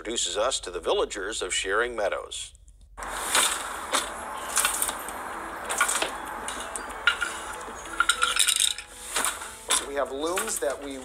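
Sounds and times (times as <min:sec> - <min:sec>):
hard objects clinking and clattering: 0:03.0 - 0:11.0.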